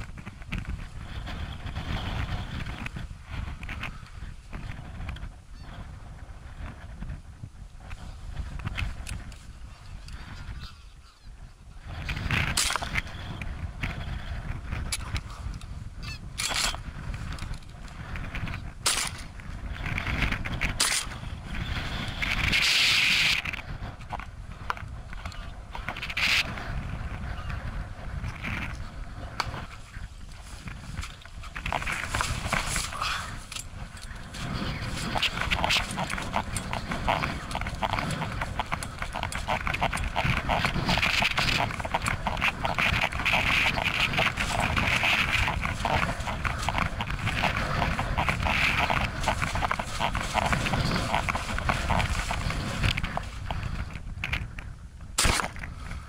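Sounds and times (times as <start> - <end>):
wind buffeting microphone: 0.0 - 56.0
geese calling: 16.0 - 16.8, 28.4 - 54.0
footsteps running through wet grass: 30.3 - 53.8
short sharp cracks: 55.2 - 55.8.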